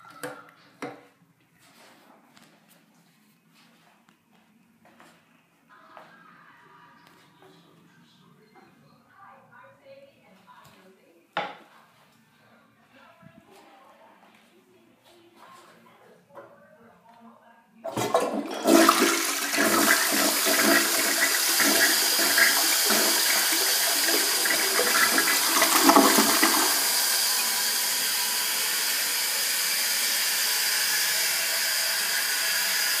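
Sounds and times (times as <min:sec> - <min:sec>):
toilet flushing with gurgling: 0:17.9 - 0:33.0.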